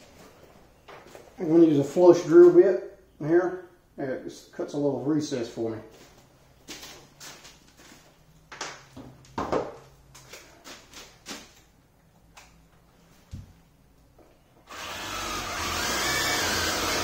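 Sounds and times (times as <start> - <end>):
power drill cutting wood: 14.7 - 17.0.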